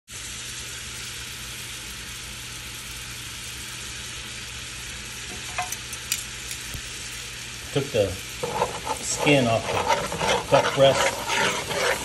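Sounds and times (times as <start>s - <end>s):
fat sizzling in a pan: 0.1s - 12.0s
steady low hum: 7.8s - 12.0s.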